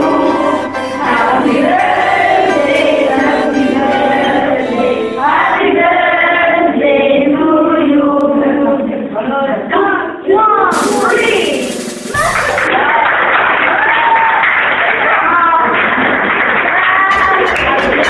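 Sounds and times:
group singing a birthday song: 0.0s - 9.9s.

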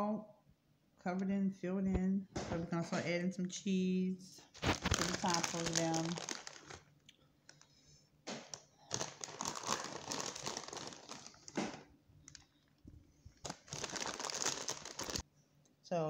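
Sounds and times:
cheese crinkling and rustling: 4.4s - 15.2s.

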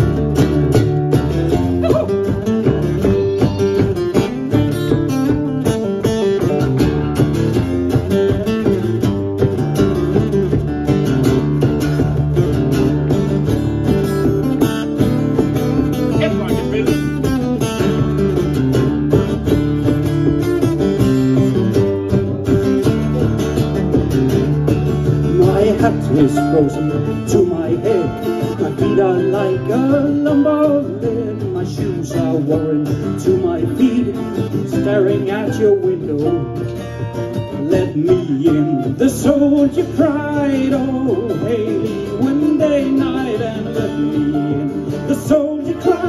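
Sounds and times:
bodhran drum beating: 0.0s - 46.0s
strummed acoustic guitar: 0.0s - 46.0s
fiddle: 2.8s - 5.4s.

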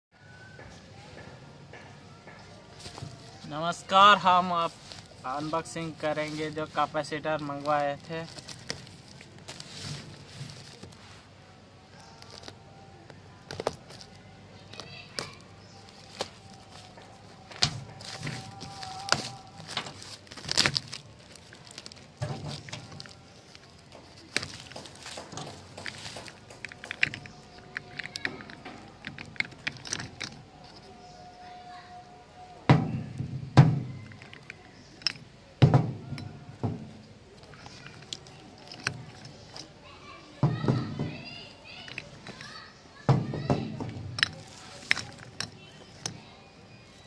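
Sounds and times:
packing tape and plastic snapping: 4.5s - 11.0s, 11.8s - 31.1s.

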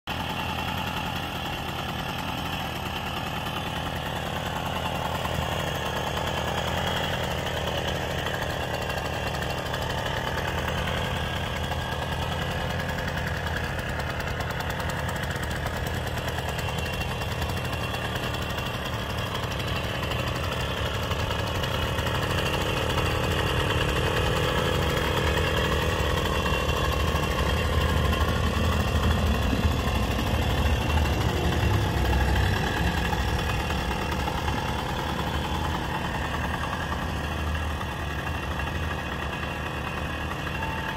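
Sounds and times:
moped engine idling: 0.1s - 40.9s.

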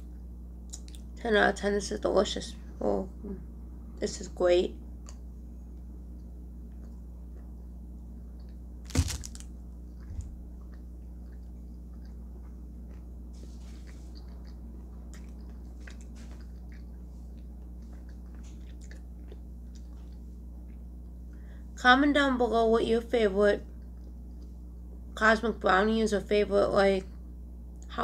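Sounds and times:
low electrical hum: 0.0s - 28.0s
person chewing: 8.4s - 21.1s.

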